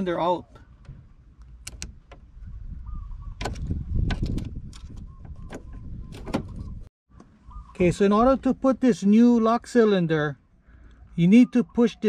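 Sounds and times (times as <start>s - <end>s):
sharp clicks: 1.4s - 2.2s.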